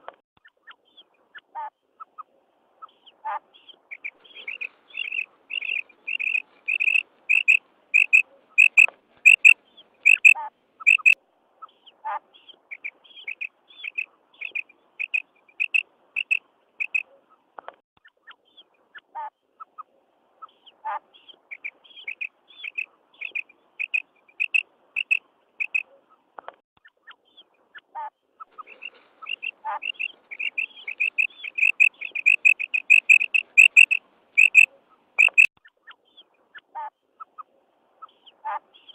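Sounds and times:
quail calling: 0:03.2 - 0:11.2, 0:12.7 - 0:17.1, 0:21.6 - 0:25.9, 0:28.0 - 0:35.5.

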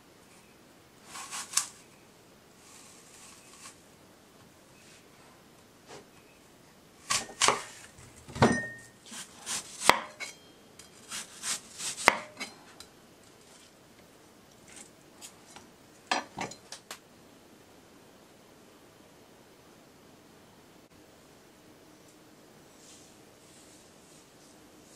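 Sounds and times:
knife slicing apple on board: 0:01.0 - 0:01.8, 0:07.0 - 0:07.9, 0:09.1 - 0:10.3, 0:11.0 - 0:12.6.

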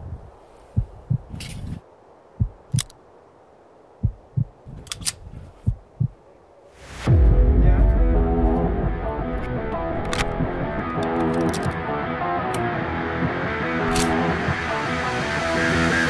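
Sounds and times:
heartbeat thumps: 0:00.0 - 0:01.8, 0:02.4 - 0:02.8, 0:04.0 - 0:06.2, 0:07.0 - 0:11.0
pistol slide metallic clicks: 0:02.7 - 0:03.0, 0:04.8 - 0:05.2, 0:13.9 - 0:14.2
rising whoosh: 0:06.8 - 0:16.0
loud music: 0:07.0 - 0:16.0.

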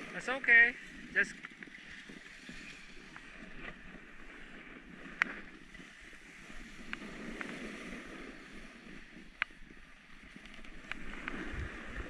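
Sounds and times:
skis sliding over crusty snow: 0:00.0 - 0:12.0
wind on microphone: 0:10.4 - 0:12.0.

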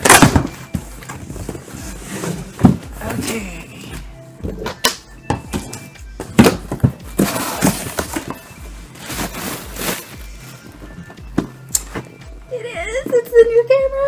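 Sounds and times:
cardboard knocks and scrapes: 0:00.1 - 0:03.3
packing material rustling: 0:07.1 - 0:10.8.

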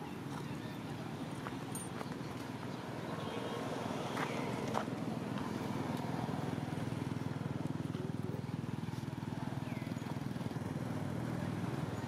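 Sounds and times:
small engine idling: 0:04.8 - 0:12.0.

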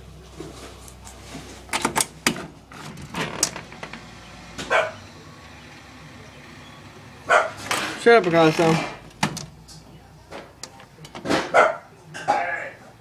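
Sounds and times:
dog barking: 0:04.7 - 0:05.0, 0:07.3 - 0:07.6, 0:11.5 - 0:12.0.

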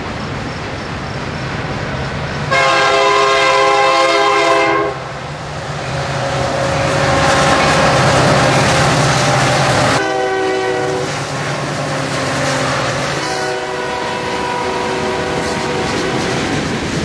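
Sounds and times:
locomotive engine: 0:00.0 - 0:17.0
locomotive air horn blasts: 0:02.5 - 0:05.1, 0:09.2 - 0:11.3, 0:12.3 - 0:16.4
freight cars rumbling and clattering: 0:05.0 - 0:14.2.

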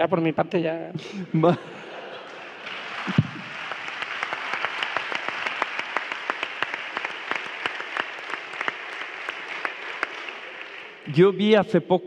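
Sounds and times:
audience applause: 0:02.1 - 0:11.2.

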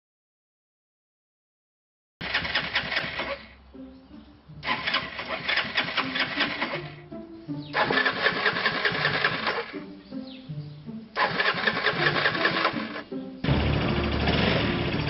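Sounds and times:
scooter engine cranking: 0:02.2 - 0:03.6, 0:04.6 - 0:07.0, 0:07.7 - 0:09.8, 0:11.2 - 0:15.0
background music: 0:02.4 - 0:15.0.

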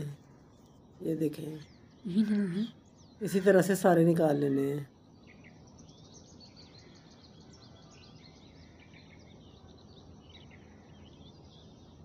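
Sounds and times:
low steady background noise: 0:00.0 - 0:12.0
small birds chirping: 0:00.0 - 0:12.0.

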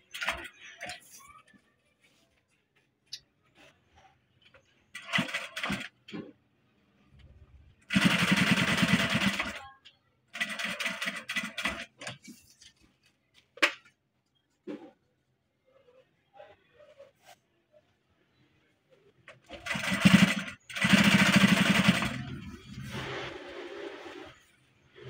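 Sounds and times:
industrial sewing machine stitching: 0:05.0 - 0:06.0, 0:07.9 - 0:09.6, 0:10.4 - 0:12.1, 0:19.4 - 0:24.4.

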